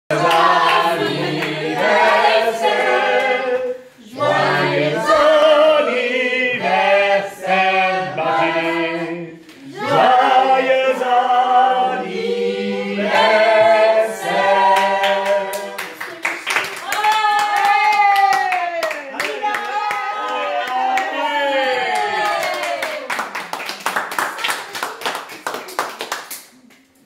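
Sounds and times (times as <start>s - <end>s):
group singing a cappella: 0.1s - 16.0s.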